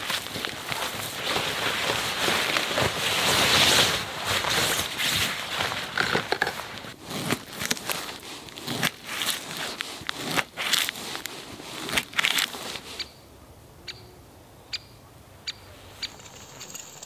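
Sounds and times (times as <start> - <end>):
paper crinkling: 0.0 - 13.0
tent nylon rustling and scraping: 0.0 - 13.1.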